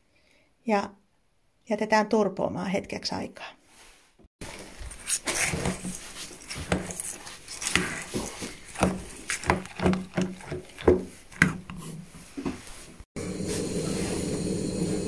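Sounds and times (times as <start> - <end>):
spoon scraping metal pot: 4.4 - 13.0.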